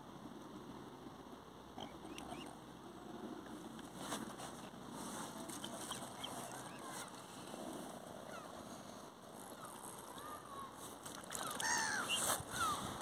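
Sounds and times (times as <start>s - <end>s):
water birds squawking: 1.8s - 2.6s, 5.4s - 7.1s, 9.5s - 12.9s.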